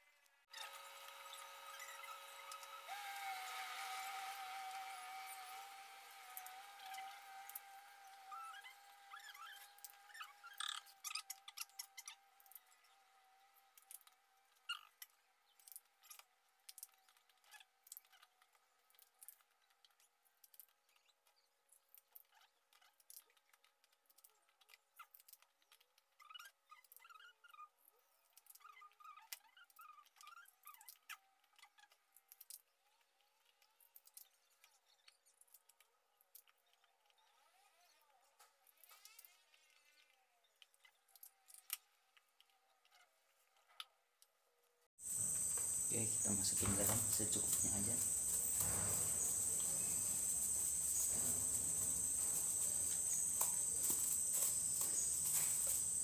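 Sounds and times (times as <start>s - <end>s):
husks peeled by hand: 0.5s - 13.9s, 45.0s - 56.0s
faint chirps: 45.0s - 56.0s
high-pitched insect chorus: 45.0s - 56.0s.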